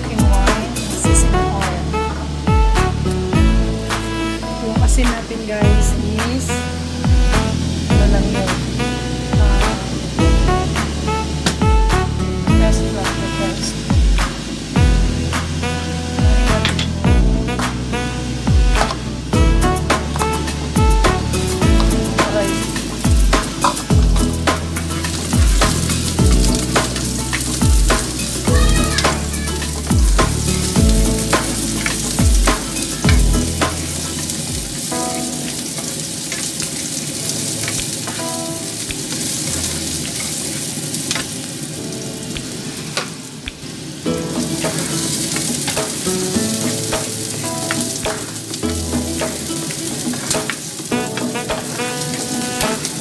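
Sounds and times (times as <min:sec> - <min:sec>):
onion sizzling in hot oil: 0:00.0 - 0:53.0
background beat with deep bass: 0:00.2 - 0:06.0, 0:07.0 - 0:08.6, 0:09.4 - 0:13.0, 0:13.9 - 0:34.9.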